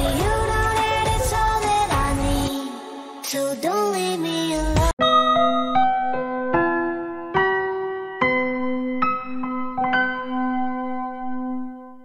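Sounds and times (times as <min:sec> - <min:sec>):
electronic dance-pop music: 0:00.0 - 0:05.0.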